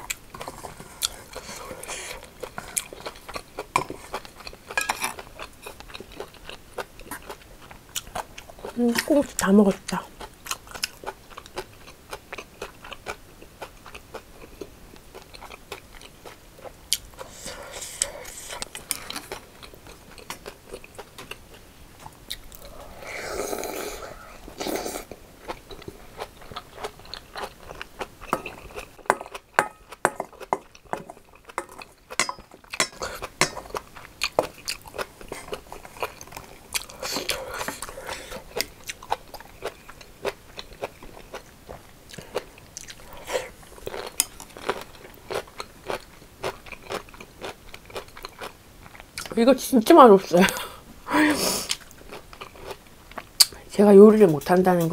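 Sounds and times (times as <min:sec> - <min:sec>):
person chewing: 0:00.0 - 0:09.0, 0:09.9 - 0:49.3, 0:51.4 - 0:53.6
slurp of broth: 0:22.6 - 0:25.1.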